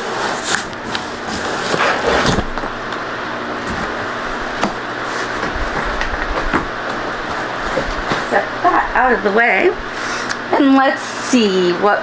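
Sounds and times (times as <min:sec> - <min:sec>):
boxes shuffling: 0:00.0 - 0:02.8, 0:03.6 - 0:08.4.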